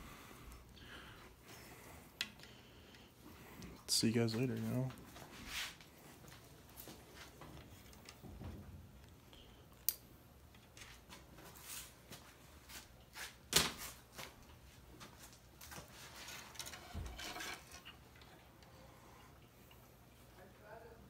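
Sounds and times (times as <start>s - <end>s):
small clicks and rustles: 4.4s - 11.8s.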